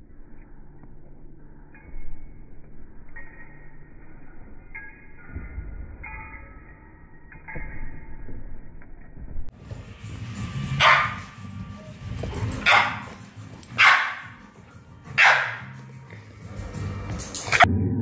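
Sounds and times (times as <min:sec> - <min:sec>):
dog barking: 0:10.8 - 0:11.2, 0:12.6 - 0:13.1, 0:13.8 - 0:14.4, 0:15.2 - 0:15.7.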